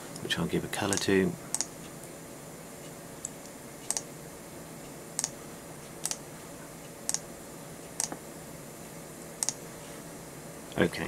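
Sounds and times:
faint steady hum: 0.0s - 11.0s
computer mouse clicks: 0.9s - 1.7s, 3.2s - 4.1s, 5.2s - 5.4s, 6.0s - 6.2s, 7.1s - 7.3s, 8.0s - 8.2s, 9.4s - 9.6s.

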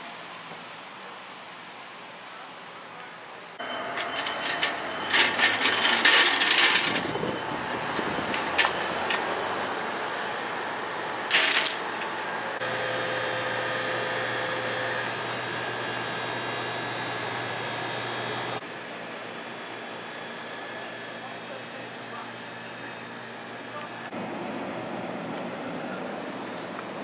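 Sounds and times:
supermarket background hum: 0.0s - 27.0s
shopping cart rattling: 3.7s - 9.2s, 11.3s - 11.8s.

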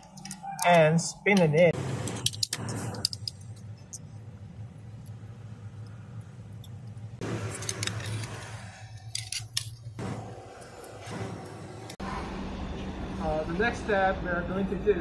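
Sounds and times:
metal tubes clinking and rattling: 0.0s - 4.2s, 6.6s - 10.0s.

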